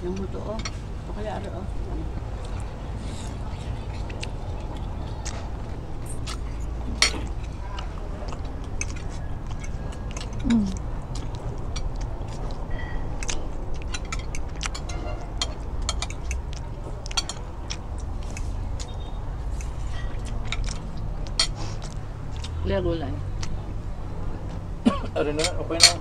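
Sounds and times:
chewing: 0:01.9 - 0:22.6, 0:23.2 - 0:26.0
cutlery clicking on plates: 0:06.2 - 0:10.6, 0:11.2 - 0:19.0, 0:19.6 - 0:22.6, 0:25.2 - 0:26.0.

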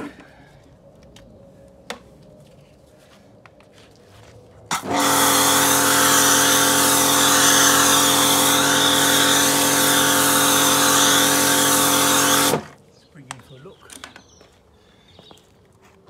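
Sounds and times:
machine hum: 0:04.7 - 0:12.8.

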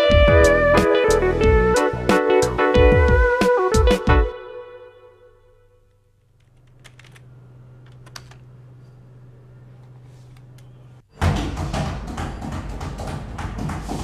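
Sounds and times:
keyboard key clicks: 0:06.4 - 0:07.2.

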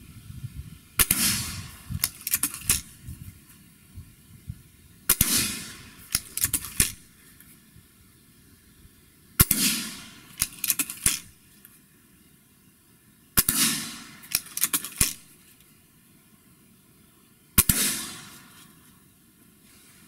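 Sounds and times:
air rifle shots: 0:01.0 - 0:03.1, 0:05.1 - 0:07.2, 0:09.4 - 0:11.4, 0:13.4 - 0:15.5, 0:17.6 - 0:18.7
air rifle cocking clicks: 0:02.0 - 0:03.0, 0:05.1 - 0:07.1, 0:10.3 - 0:11.4, 0:14.2 - 0:15.7.

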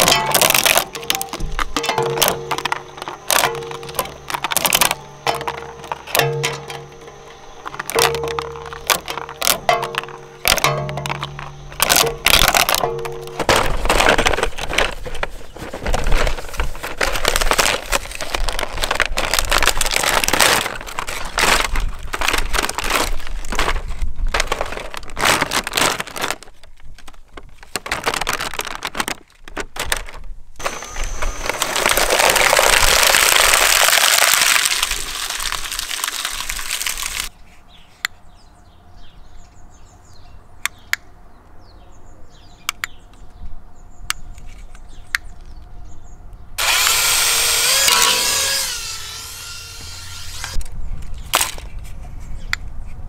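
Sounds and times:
shredder cracking and crunching: 0:00.0 - 0:37.3, 0:46.6 - 0:50.7.

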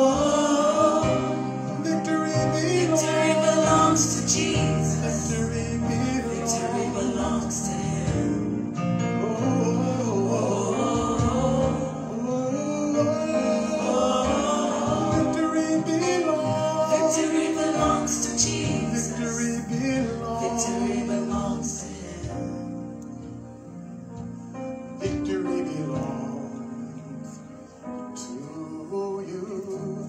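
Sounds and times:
group singing worship song: 0:00.0 - 0:23.4
keyboard accompaniment: 0:00.0 - 0:30.0.

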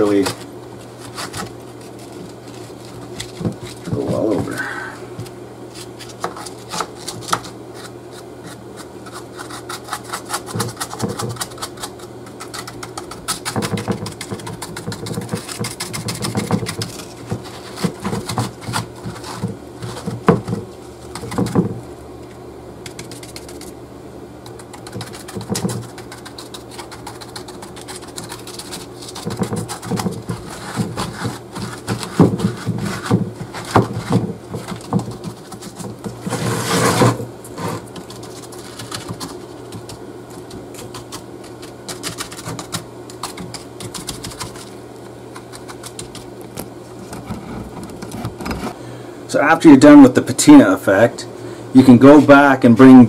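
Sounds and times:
steady low hum: 0:00.0 - 0:53.0
paper towel dabbing and rustling: 0:24.8 - 0:46.2.

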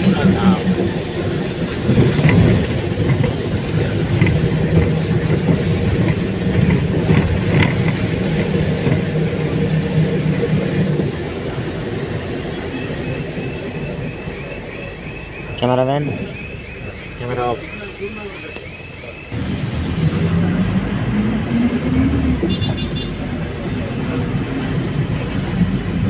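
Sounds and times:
bus engine running: 0:00.0 - 0:26.0
road rumble: 0:00.0 - 0:26.0.

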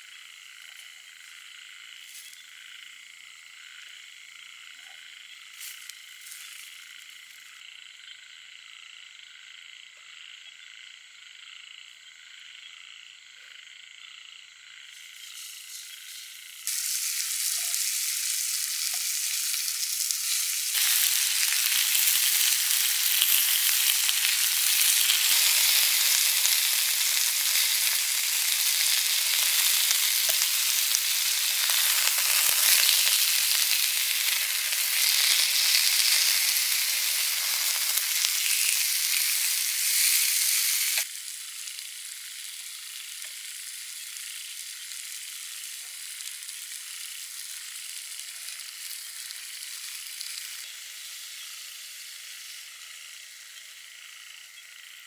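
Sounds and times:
beef sizzling in a pan: 0:14.9 - 0:55.0.

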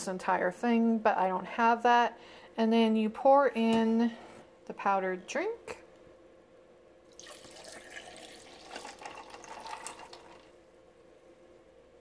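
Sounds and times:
liquid pouring over ice: 0:07.1 - 0:10.6.

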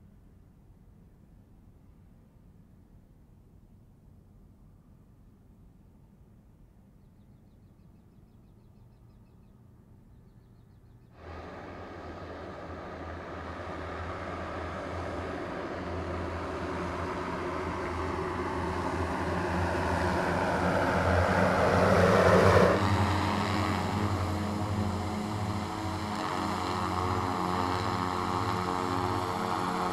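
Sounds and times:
electric propellers whirring: 0:11.2 - 0:29.9.

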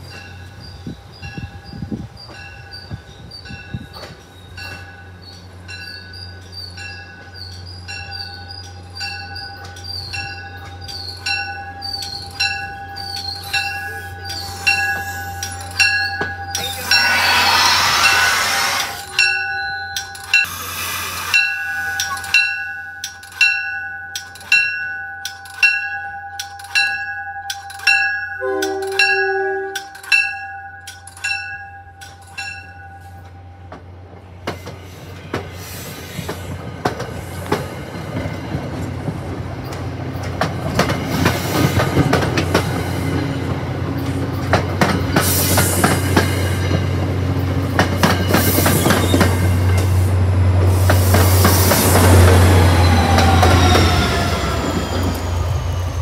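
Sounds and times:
train bell ringing: 0:00.0 - 0:33.8, 0:40.7 - 0:56.0
low train hum: 0:00.0 - 0:56.0
air hiss from train: 0:13.4 - 0:15.8, 0:16.6 - 0:19.3, 0:20.2 - 0:22.6, 0:34.4 - 0:37.9, 0:45.1 - 0:46.9, 0:48.2 - 0:56.0.

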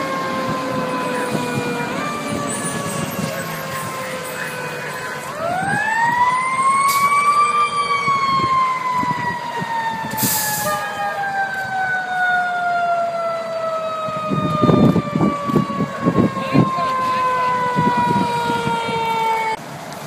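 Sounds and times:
fire engine siren winding: 0:00.0 - 0:19.6.

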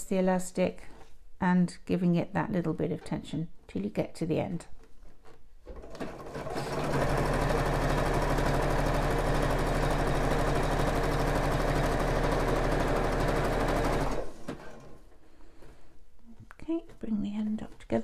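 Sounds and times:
sewing machine stitching: 0:05.7 - 0:15.0.

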